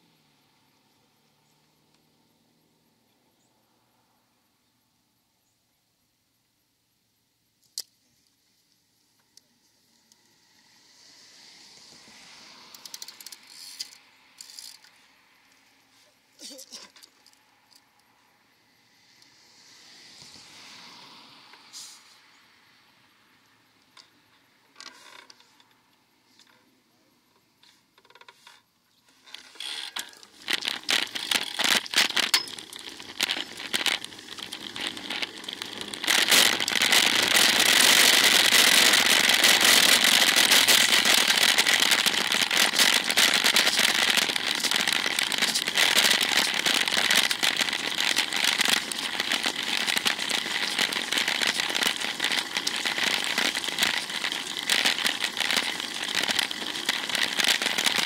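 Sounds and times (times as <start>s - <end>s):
dense steady crackle: 7.5s - 58.0s
scattered clicks: 12.7s - 15.6s, 29.3s - 58.0s.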